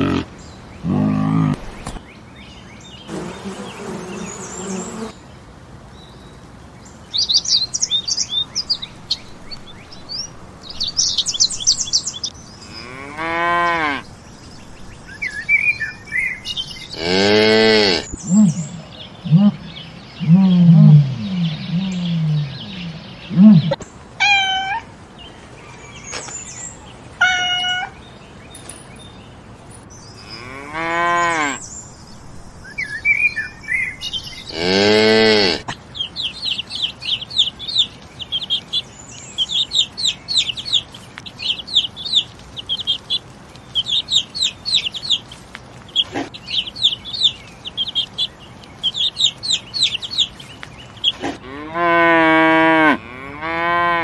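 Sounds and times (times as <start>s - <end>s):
cow mooing: 16.9s - 18.1s, 34.5s - 35.6s, 51.4s - 54.0s
cat meowing: 24.2s - 24.8s, 27.2s - 28.0s.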